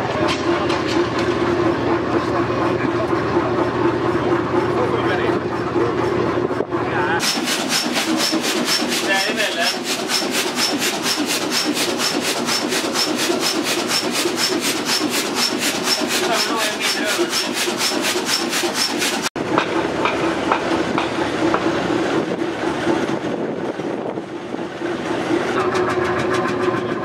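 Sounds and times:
engine clattering: 0.0 - 27.0.

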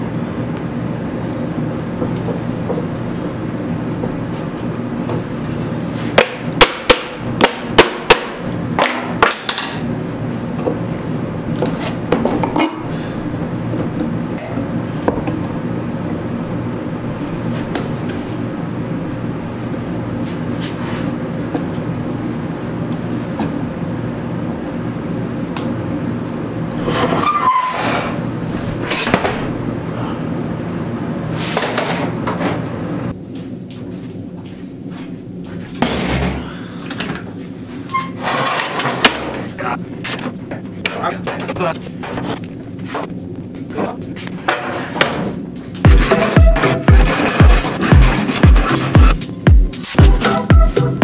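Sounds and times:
scraping on steel table: 26.8 - 28.2, 37.9 - 39.3
squeak: 27.1 - 28.0, 37.9 - 38.6.

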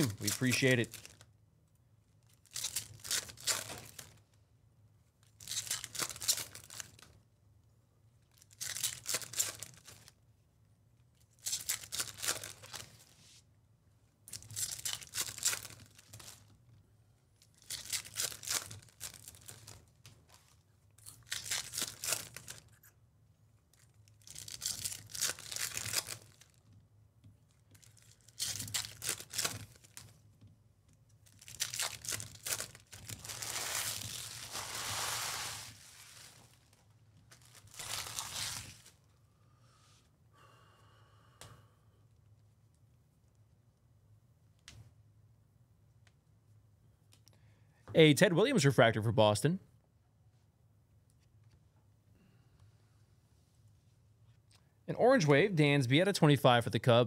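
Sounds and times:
foil packs crinkling and tearing: 0.0 - 1.2, 2.4 - 4.2, 5.4 - 7.1, 8.4 - 10.1, 11.4 - 13.0, 14.3 - 16.5, 17.5 - 19.8, 21.0 - 22.7, 24.2 - 26.6, 27.8 - 30.1, 31.3 - 39.0.

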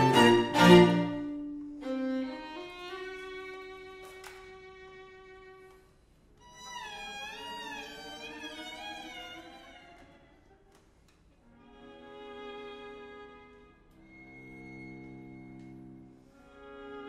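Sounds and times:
violin sliding in pitch: 0.0 - 4.2
string quartet playing: 0.0 - 17.0.

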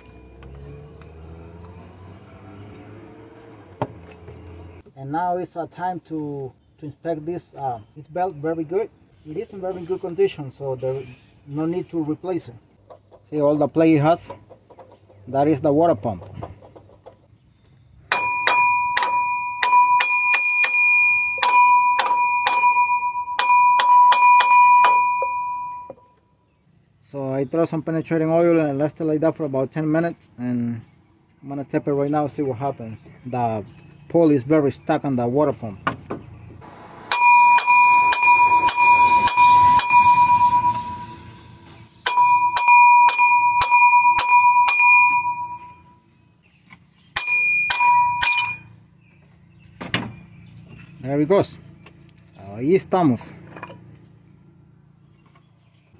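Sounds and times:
hammer tapping on metal: 18.1 - 25.3, 42.1 - 45.7, 47.2 - 48.7.

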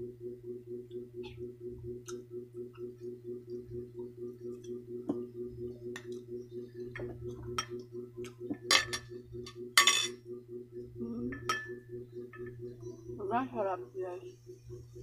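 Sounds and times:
low pulsing hum: 0.0 - 15.0
metal spoon clinking on plate: 9.8 - 10.2.

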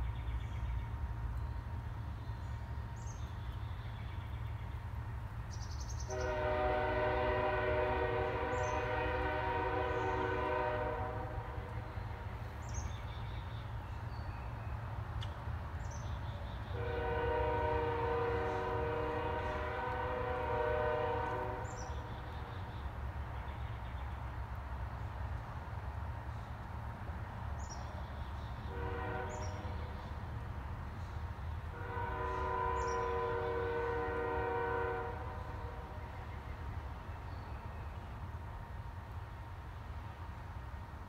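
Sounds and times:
multi-tone horn blasts: 6.1 - 11.9, 16.8 - 22.0, 28.7 - 29.8, 31.7 - 36.0.

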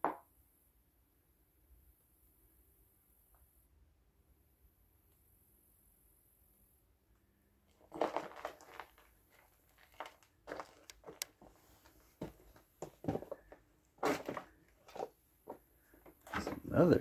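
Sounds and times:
footsteps crunching over debris: 7.7 - 15.6.

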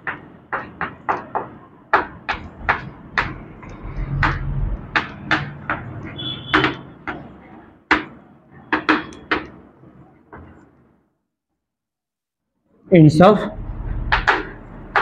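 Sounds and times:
chalk tapping on blackboard: 0.0 - 7.3, 14.1 - 15.0.

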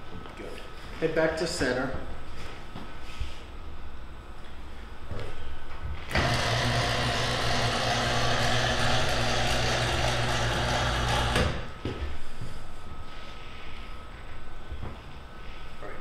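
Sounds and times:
electric motor running: 6.1 - 11.7.

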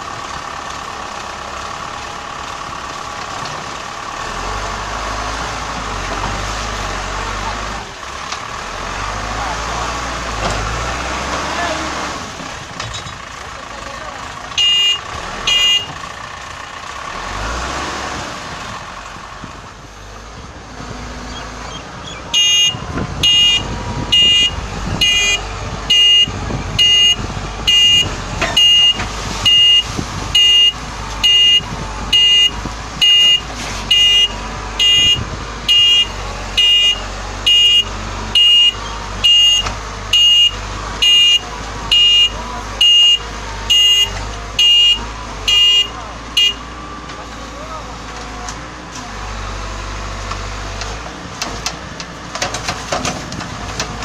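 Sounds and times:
diesel engine running: 0.0 - 54.0
reversing alarm beeping: 22.3 - 46.6.

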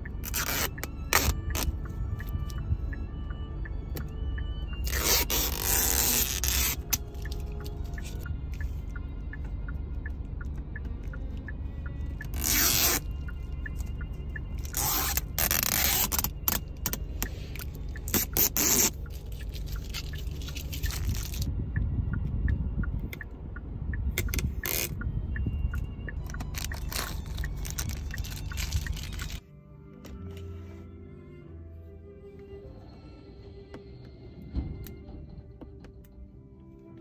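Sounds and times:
plastic film being peeled off: 0.2 - 1.7, 4.9 - 7.0, 18.1 - 21.5, 26.5 - 29.4.

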